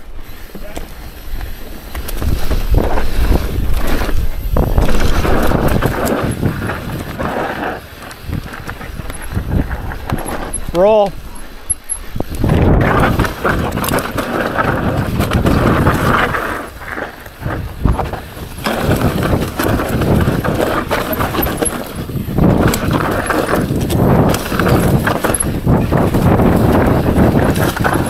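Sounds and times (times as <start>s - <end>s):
bike rattling over bumps: 0.0s - 28.0s
bike tyres rolling over rocks: 0.0s - 28.0s.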